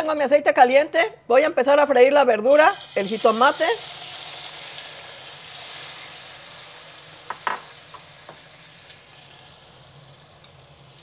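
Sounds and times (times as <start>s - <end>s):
tomatoes sizzling in hot oil: 2.4s - 11.0s.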